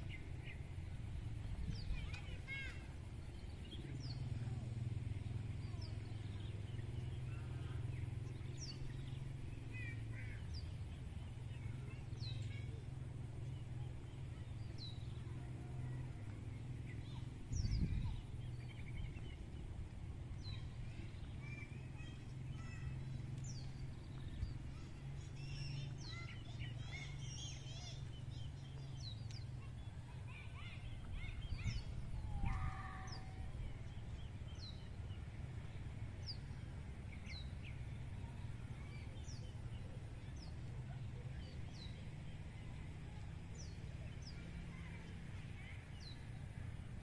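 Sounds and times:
small birds chirping: 0:00.0 - 0:47.0
steady low hum: 0:00.0 - 0:47.0.

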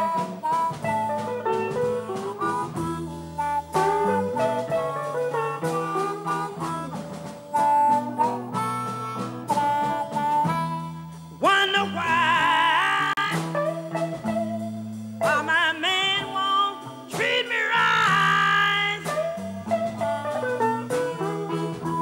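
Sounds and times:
blues band playing: 0:00.0 - 0:22.0
woman singing with vibrato: 0:11.4 - 0:13.6, 0:15.2 - 0:19.7.

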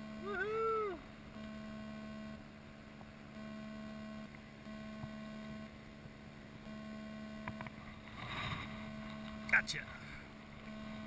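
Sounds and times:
faint electrical hum: 0:00.0 - 0:11.0
faint ticks: 0:07.4 - 0:07.8.

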